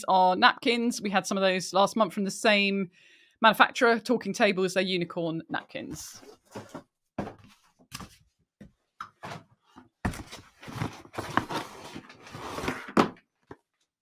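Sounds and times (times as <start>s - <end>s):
cardboard rustling and tearing: 10.1s - 13.0s.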